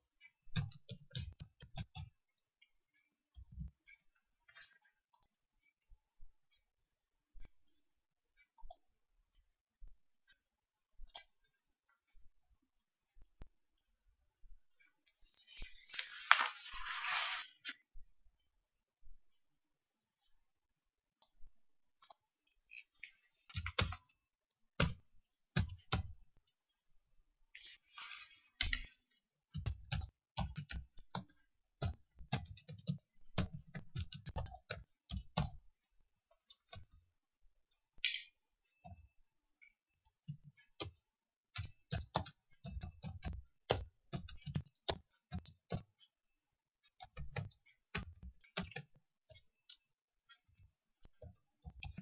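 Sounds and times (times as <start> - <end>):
keyboard typing clicks: 22.0 - 22.9, 23.5 - 24.2, 28.6 - 35.6, 46.9 - 52.0.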